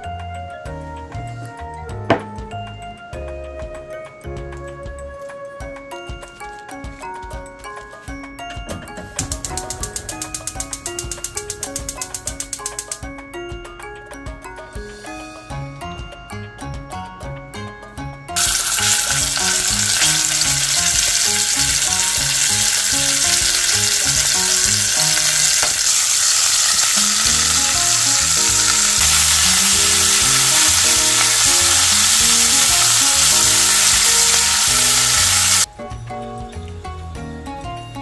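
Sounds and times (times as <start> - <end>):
meat sizzling in hot oil: 18.4 - 35.7.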